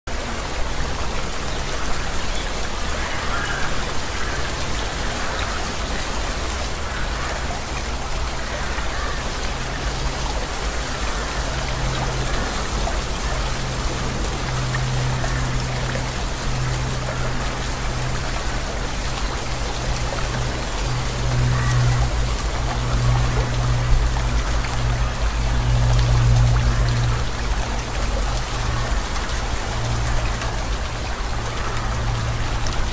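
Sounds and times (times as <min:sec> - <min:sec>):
steady rain: 0:00.0 - 0:32.9.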